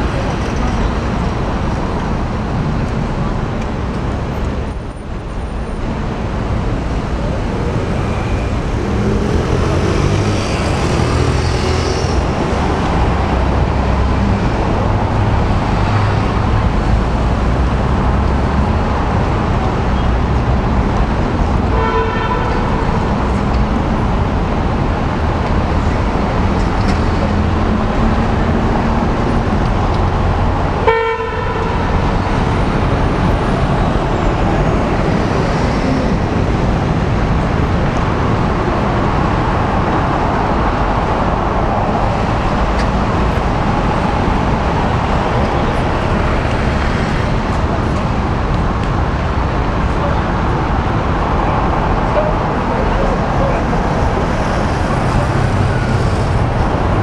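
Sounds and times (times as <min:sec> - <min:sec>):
road traffic noise: 0:00.0 - 0:57.0
vehicle horn: 0:21.7 - 0:23.0, 0:30.8 - 0:32.1.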